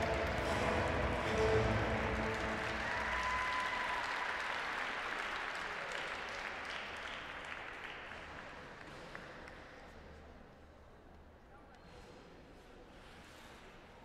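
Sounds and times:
audience applauding: 0:00.0 - 0:09.3.

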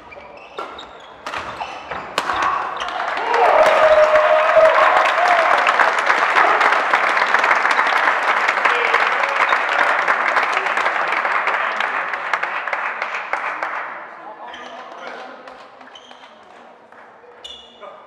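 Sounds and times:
audience applauding: 0:02.6 - 0:14.1.

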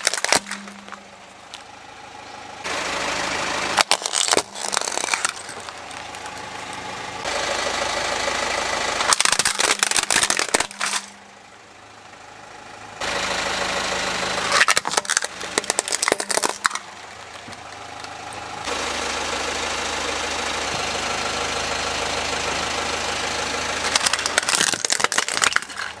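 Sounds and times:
tyre crushing plastic toys: 0:00.0 - 0:01.1, 0:03.8 - 0:06.9, 0:09.0 - 0:11.2, 0:14.5 - 0:18.2, 0:23.9 - 0:26.0
car engine idling: 0:00.0 - 0:26.0.

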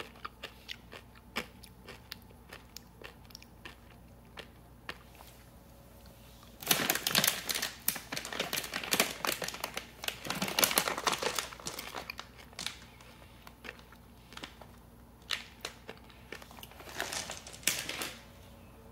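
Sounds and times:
plastic candy bag crinkling: 0:06.5 - 0:18.4.

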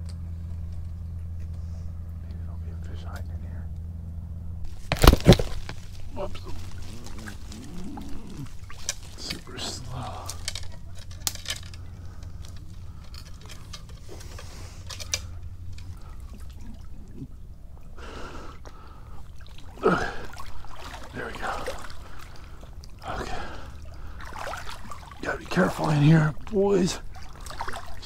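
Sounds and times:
water splashing around legs: 0:04.7 - 0:14.4, 0:18.7 - 0:28.0.

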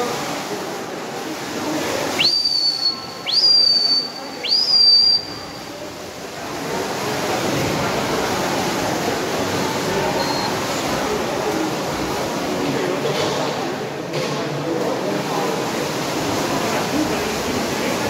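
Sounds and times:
echoing pool splashing: 0:00.0 - 0:18.0
spectators: 0:02.0 - 0:12.9
high whistles: 0:02.2 - 0:05.8.

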